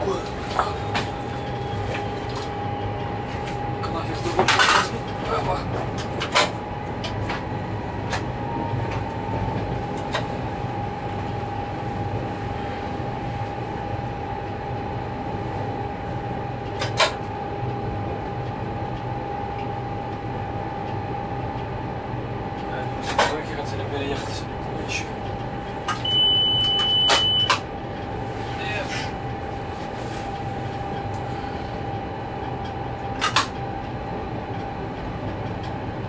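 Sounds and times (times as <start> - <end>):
locomotive engine low drone: 0.0 - 36.0
high whine: 23.9 - 35.9.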